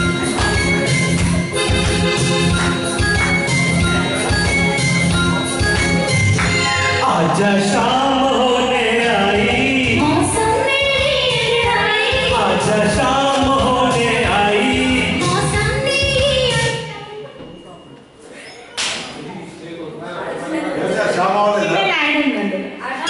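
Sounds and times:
recorded backing music: 0.0s - 17.4s
man and woman singing duet: 6.7s - 16.6s.

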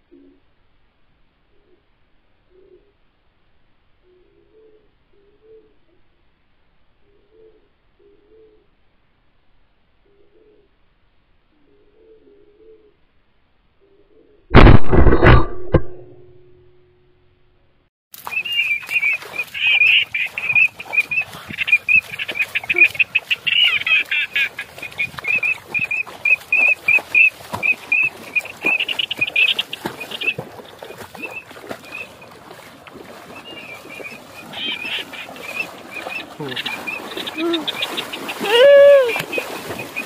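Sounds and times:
birds chirping: 18.2s - 40.0s
person wading through shallow water: 18.2s - 40.0s.

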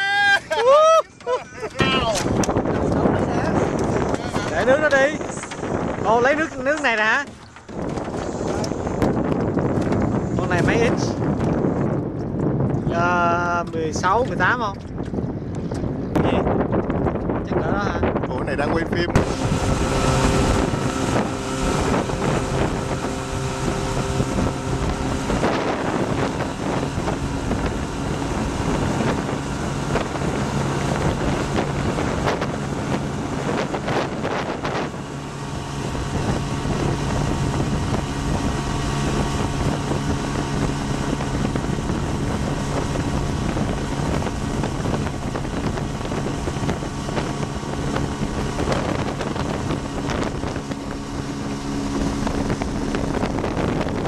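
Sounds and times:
outboard motor running: 0.0s - 54.0s
wind buffeting microphone: 0.0s - 54.0s
water rushing past: 19.0s - 54.0s.

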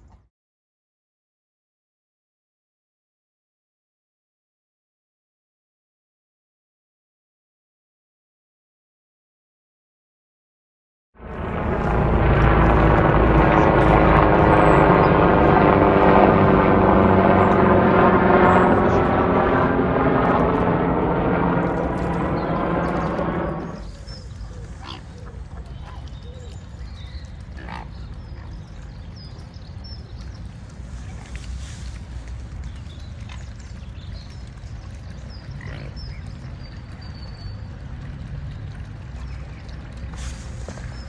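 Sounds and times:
steady low rumble: 11.2s - 25.8s
helicopter flying overhead: 11.2s - 28.5s, 29.4s - 41.0s.

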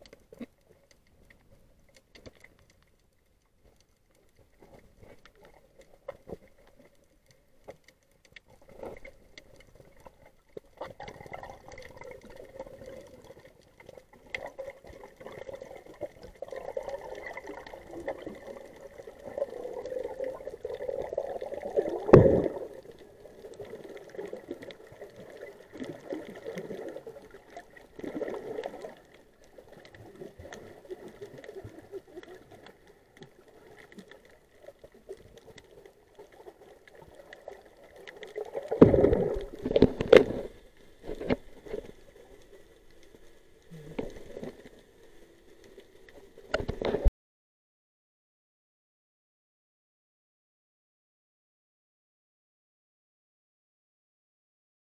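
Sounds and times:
crackling clicks: 0.0s - 47.1s
muffled underwater movement: 0.0s - 47.1s.

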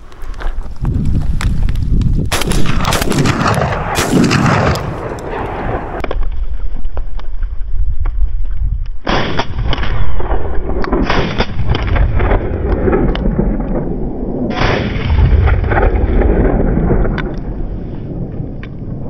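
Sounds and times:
shotgun shots: 2.3s - 6.1s, 9.1s - 13.0s, 14.5s - 16.5s.

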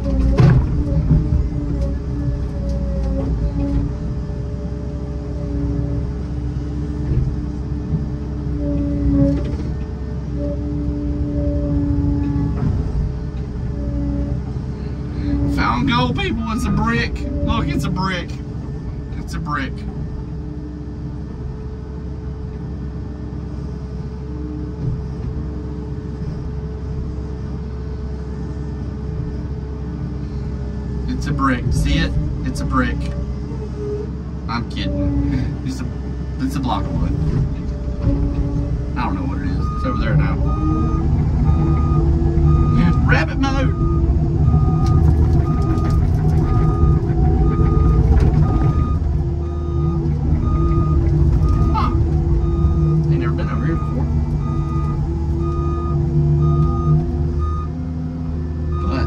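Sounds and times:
cab rattling: 0.0s - 23.0s, 24.2s - 59.0s
diesel engine running under load: 0.0s - 59.0s
hydraulic whine: 0.0s - 59.0s
backup alarm beeping: 15.2s - 18.3s, 37.9s - 57.8s, 58.7s - 59.0s.

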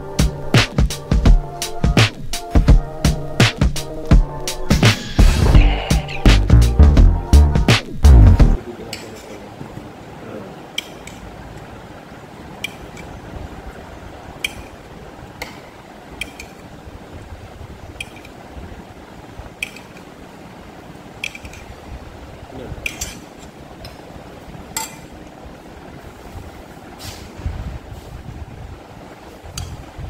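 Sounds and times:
low steady rumble: 5.3s - 30.0s
spoons clinking on glass bowl: 16.2s - 16.6s, 22.8s - 23.4s, 24.7s - 25.1s.

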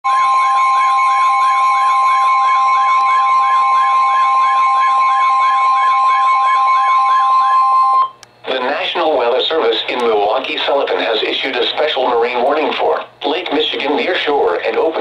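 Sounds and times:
warbling siren: 0.1s - 8.2s
steady warning alarm tone: 0.1s - 9.7s.

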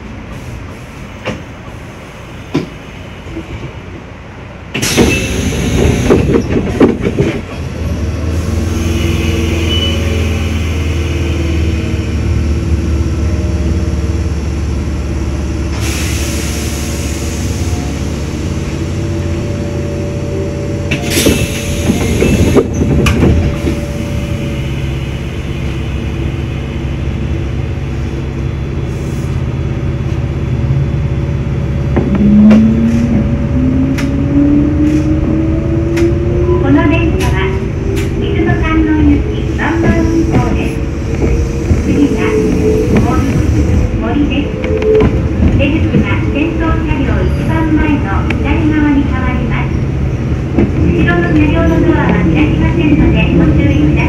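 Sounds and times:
train clattering on track: 0.0s - 28.5s, 29.2s - 54.0s
train humming: 0.0s - 54.0s.

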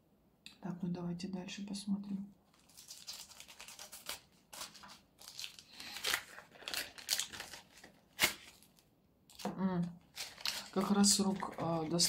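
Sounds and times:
packaging crinkling and rustling: 2.5s - 12.0s
packaging ripping: 2.5s - 12.0s.

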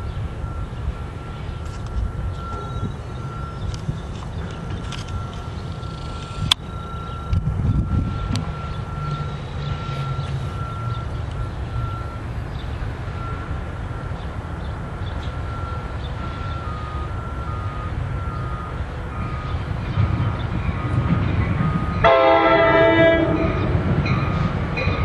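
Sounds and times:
crossing warning bell beeping: 0.0s - 25.0s
lower alternating beep: 0.4s - 4.2s, 4.8s - 12.3s, 15.2s - 22.1s.

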